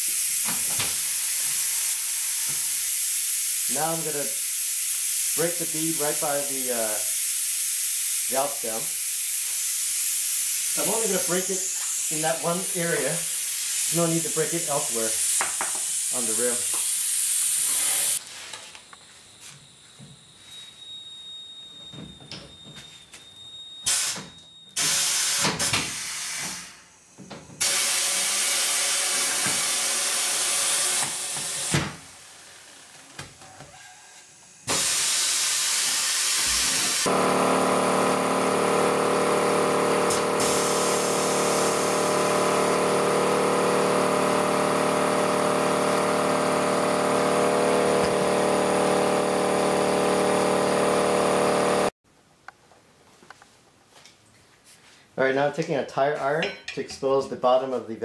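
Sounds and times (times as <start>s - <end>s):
compressed air hissing bursts: 0.0s - 18.2s, 23.9s - 24.2s, 24.8s - 31.7s, 34.4s - 37.3s, 40.0s - 44.6s
air compressor running: 0.0s - 20.6s, 23.9s - 33.0s, 34.2s - 52.0s.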